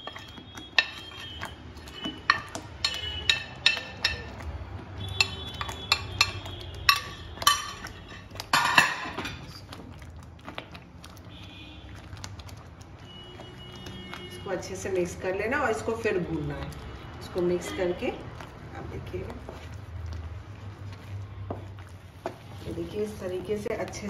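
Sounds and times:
spoon clinking against glass bowl: 0:00.0 - 0:04.4, 0:05.1 - 0:09.4.

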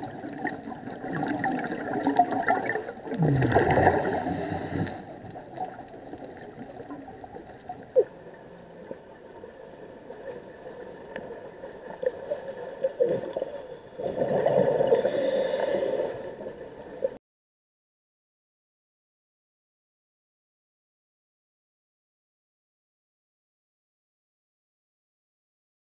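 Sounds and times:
exhaled regulator bubbles: 0:00.0 - 0:08.1
underwater gurgling: 0:00.0 - 0:17.2.

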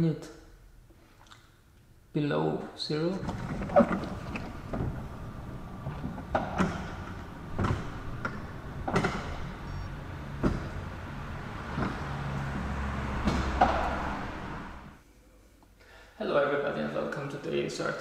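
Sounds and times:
garage door clunking and rattling: 0:03.1 - 0:15.0
low hum: 0:03.1 - 0:15.0.

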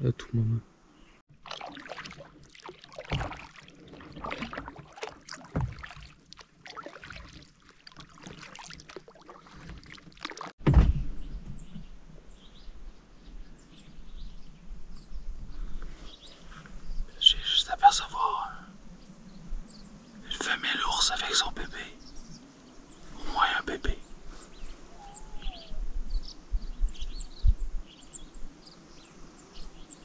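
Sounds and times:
faint water lapping: 0:01.3 - 0:10.6
paddle splashing in water: 0:01.3 - 0:10.7
water dripping off paddle: 0:01.4 - 0:10.5
dull thump: 0:10.6 - 0:11.9.

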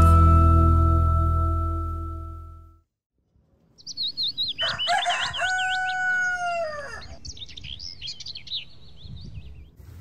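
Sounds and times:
small birds chirping: 0:03.7 - 0:09.8
rooster crowing: 0:04.6 - 0:07.2.

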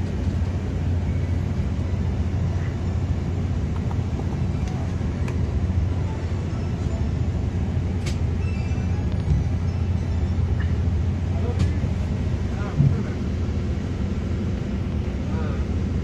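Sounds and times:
bus engine drone inside cabin: 0:00.0 - 0:16.0.

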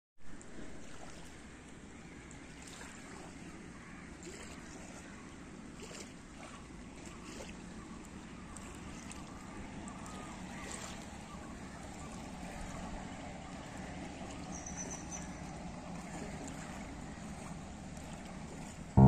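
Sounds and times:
lapping water: 0:00.3 - 0:19.0.

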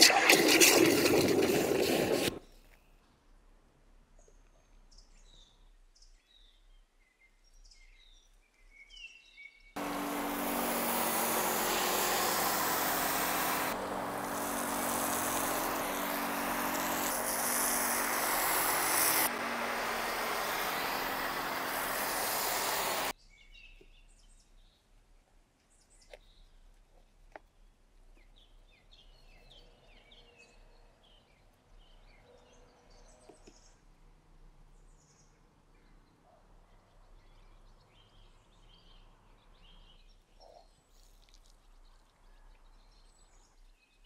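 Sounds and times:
pressure washer spraying foam: 0:00.0 - 0:02.4, 0:09.8 - 0:23.1
birds chirping: 0:09.8 - 0:23.1.

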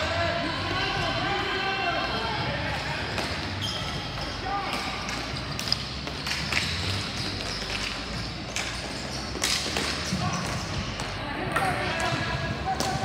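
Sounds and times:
steady background noise: 0:00.0 - 0:13.0
hockey sticks and ball knocking: 0:04.6 - 0:13.0.

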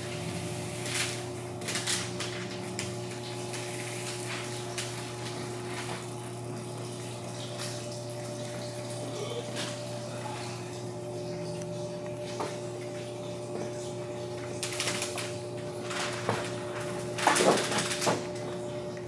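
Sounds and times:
protective film peeling: 0:00.8 - 0:05.9, 0:14.6 - 0:18.1.

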